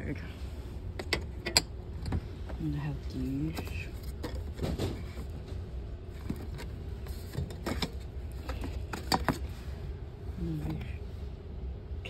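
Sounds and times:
low steady rumble: 0.0 - 12.0
merchandise clicking and knocking: 0.9 - 2.6, 3.4 - 9.5.

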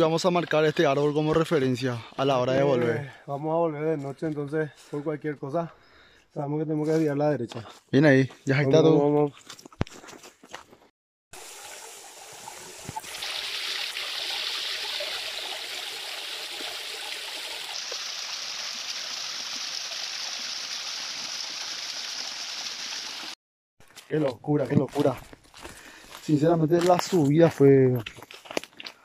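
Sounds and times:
stream trickling over rocks: 11.4 - 23.4.

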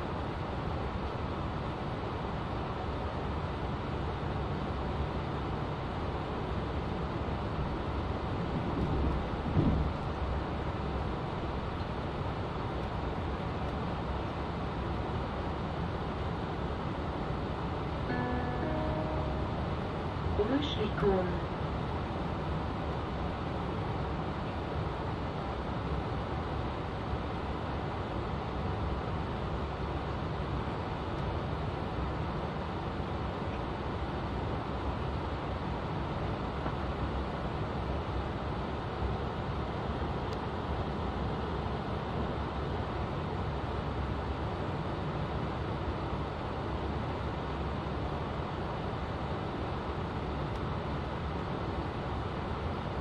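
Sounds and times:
train wheels rumbling on rail: 8.3 - 10.4.

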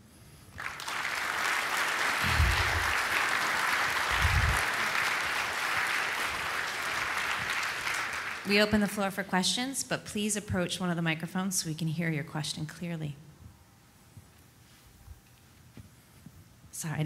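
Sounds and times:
audience applauding: 0.6 - 9.0
low thumps: 2.2 - 3.0, 4.1 - 4.6.

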